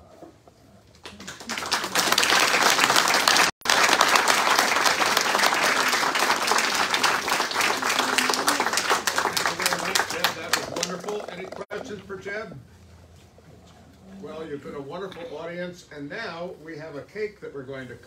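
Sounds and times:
audience clapping: 1.0s - 11.7s.

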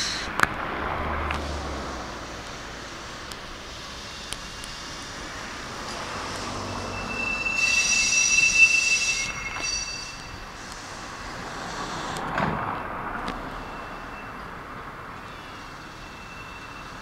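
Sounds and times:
rail-joint clicks: 3.2s - 15.3s
train wheels squealing: 3.6s - 17.0s.

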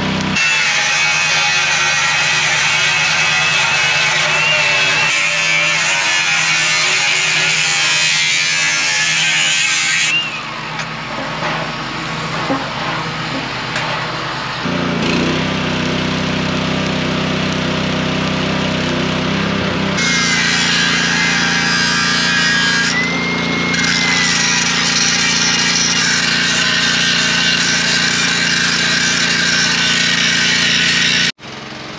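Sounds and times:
angle grinder cutting metal: 0.0s - 31.4s
arc welder buzzing: 0.0s - 31.9s.

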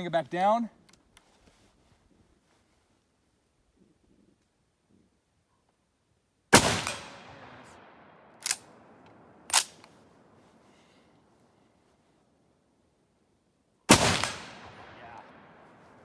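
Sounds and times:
rifle shot echoing: 6.5s - 10.3s, 13.9s - 16.0s
rifle bolt metallic clacks: 8.4s - 10.0s.

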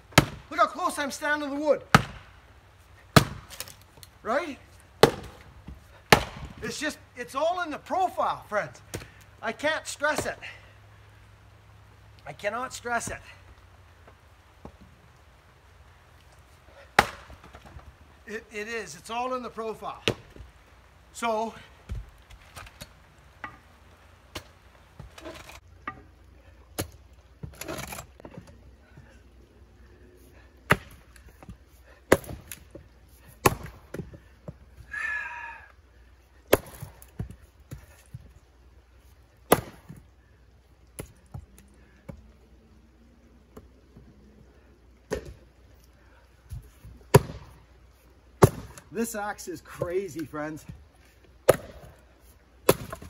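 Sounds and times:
axe chopping wood: 0.1s - 0.5s, 1.9s - 2.4s, 3.1s - 3.8s, 5.0s - 6.7s, 16.9s - 17.8s, 20.0s - 20.5s, 24.3s - 26.0s, 26.8s - 28.0s, 30.7s - 32.7s, 33.4s - 34.2s, 36.5s - 38.1s, 39.5s - 40.0s, 45.1s - 45.4s, 46.5s - 47.6s, 48.4s - 48.9s, 51.4s - 52.0s, 52.6s - 53.0s.

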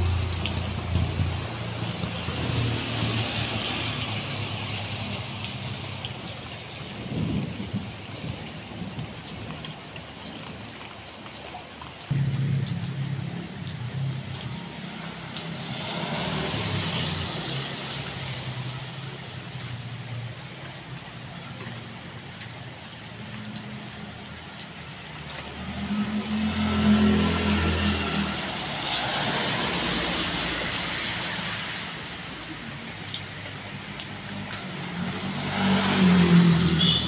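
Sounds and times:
tyres hissing on wet road: 0.0s - 10.2s, 12.4s - 37.0s
vehicle engine hum: 12.1s - 20.8s.

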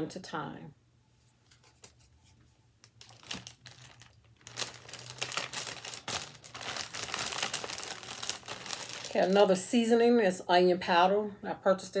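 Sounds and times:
bag crinkling and rustling: 2.9s - 9.6s.

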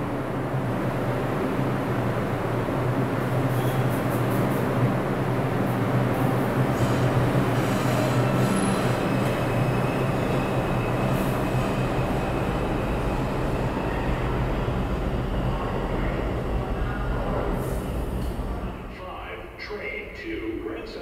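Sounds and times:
subway train rumble: 0.0s - 21.0s
faint high wheel squeal: 6.7s - 14.2s.

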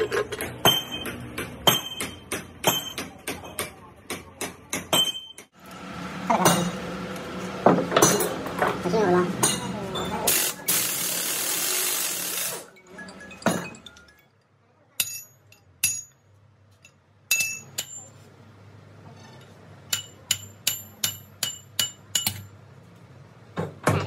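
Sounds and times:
pneumatic impact wrench: 10.3s - 12.7s.

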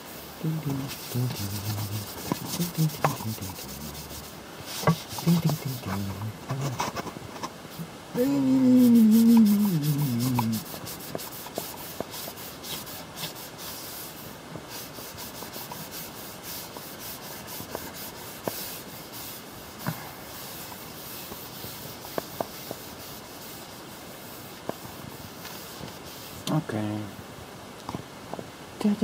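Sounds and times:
hand scrubbing shelf surface: 0.0s - 7.2s, 7.8s - 26.5s.

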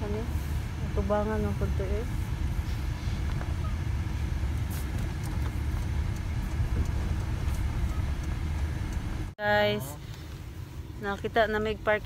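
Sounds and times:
car engine: 0.0s - 12.0s
road noise: 0.0s - 12.0s.

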